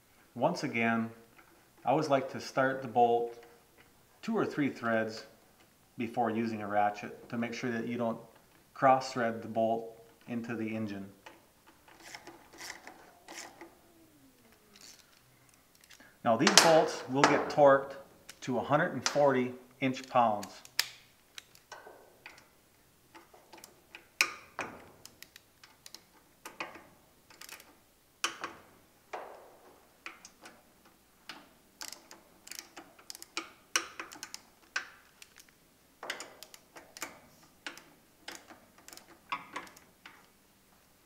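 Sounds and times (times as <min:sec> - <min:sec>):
socket ratchet clicking: 0:23.1 - 0:28.6, 0:31.3 - 0:40.3.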